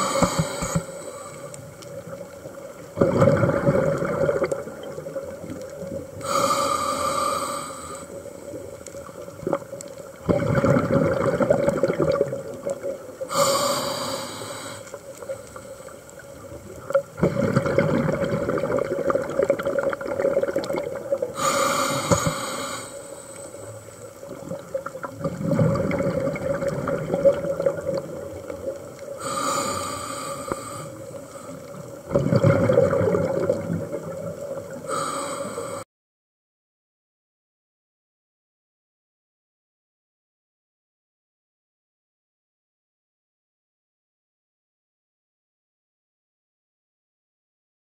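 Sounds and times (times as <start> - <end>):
hissing regulator inhalation: 0.0 - 1.7, 6.2 - 8.2, 13.3 - 16.0, 21.4 - 24.0, 29.2 - 31.8, 34.9 - 35.8
bubbling exhaled air: 0.0 - 15.7, 16.8 - 35.8.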